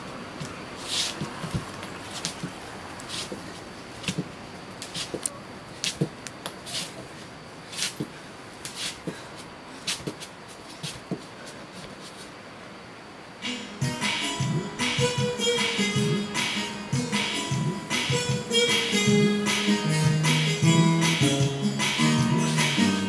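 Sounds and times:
background hiss: 0.0s - 23.0s
bare feet thudding and sliding: 0.4s - 12.3s.

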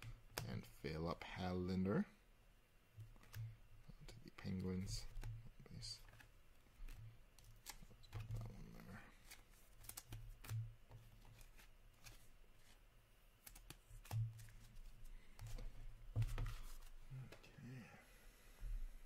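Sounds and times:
trading cards shuffled by hand: 4.4s - 12.8s, 13.4s - 16.9s.

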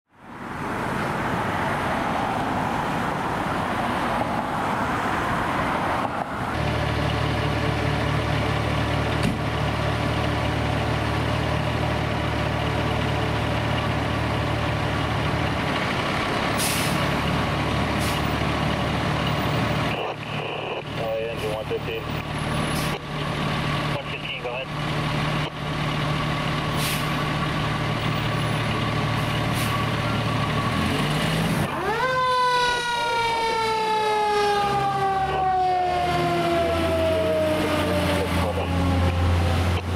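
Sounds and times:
diesel engine running: 6.1s - 39.9s.

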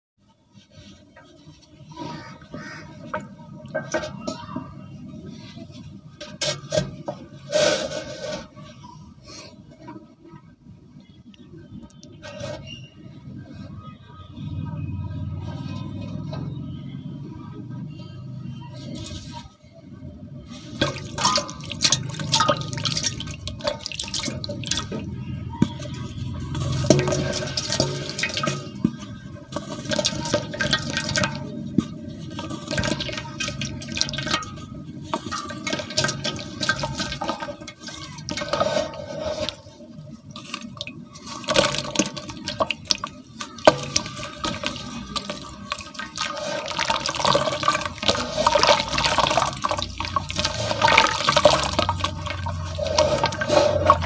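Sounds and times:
water splashing and sloshing: 20.4s - 54.0s
cement crackling and crunching: 20.5s - 54.0s.

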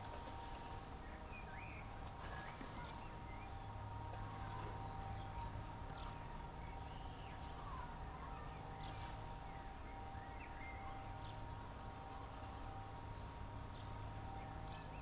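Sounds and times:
scythe swishing through grass: 0.0s - 1.1s, 2.0s - 3.5s, 4.1s - 5.0s, 5.9s - 8.0s, 8.8s - 9.6s, 12.1s - 14.2s
steady low hum: 0.0s - 15.0s
bird chirps: 0.4s - 15.0s.

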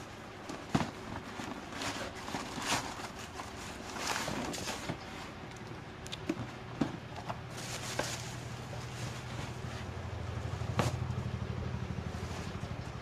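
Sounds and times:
rustling and knocks in shoebox: 0.4s - 5.4s, 6.2s - 9.7s
low motor hum: 5.3s - 13.0s.

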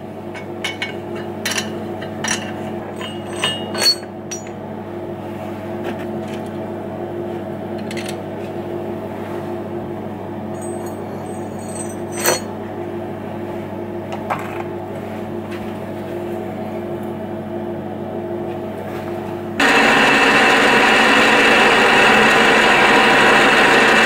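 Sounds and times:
machine hum: 0.0s - 14.2s, 19.5s - 24.0s
metallic clinks and knocks: 0.6s - 4.6s, 10.6s - 12.5s.

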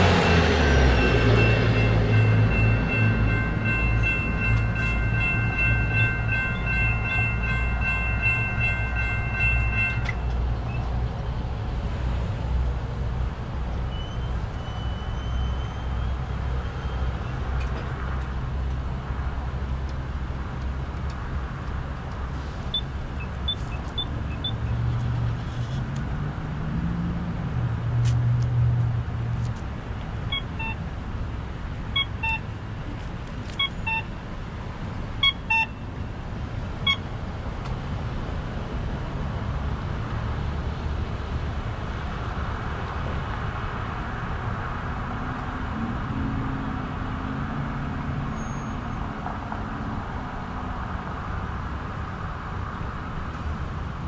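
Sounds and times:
vehicle engine: 0.0s - 35.4s
road traffic rumble: 0.0s - 54.0s
wind: 0.0s - 54.0s
short electronic beeps: 22.7s - 24.7s, 30.3s - 30.8s, 32.0s - 32.6s, 33.6s - 34.1s, 35.2s - 35.8s, 36.9s - 37.1s.

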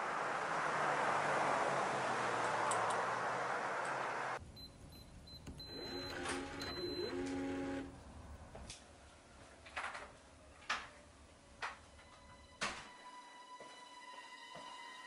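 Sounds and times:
soft footsteps: 13.6s - 14.8s.

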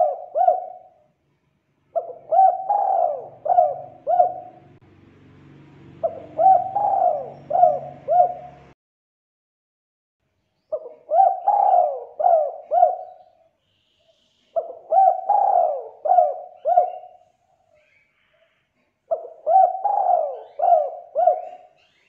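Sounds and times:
dove cooing: 0.0s - 1.1s, 1.9s - 4.8s, 6.0s - 8.8s, 10.7s - 13.5s, 14.4s - 17.4s, 19.1s - 22.0s.

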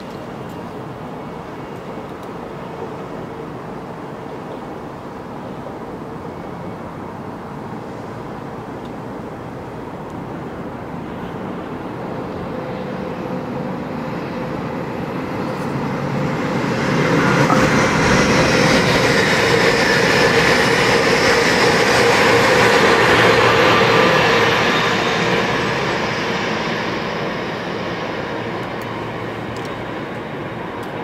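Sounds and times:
train passing on track: 0.0s - 31.0s
steady tone: 16.5s - 20.4s.

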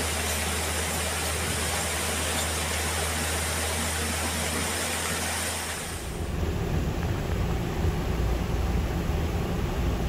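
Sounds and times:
rushing flood water: 0.0s - 6.1s.

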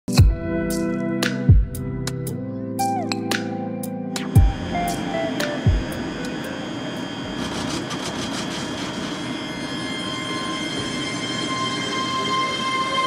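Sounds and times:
electric traction whine: 4.1s - 13.0s.

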